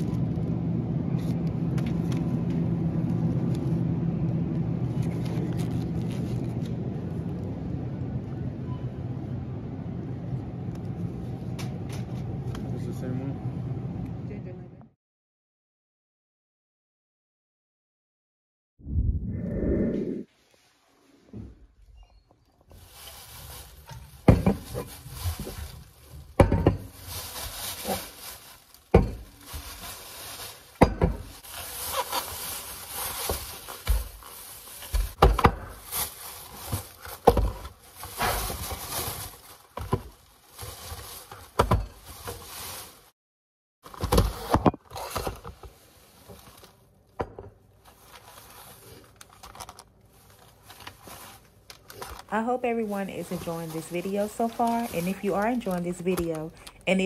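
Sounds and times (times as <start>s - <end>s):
plastic bags rustling: 22.6s - 43.2s, 43.9s - 47.0s, 47.7s - 57.0s.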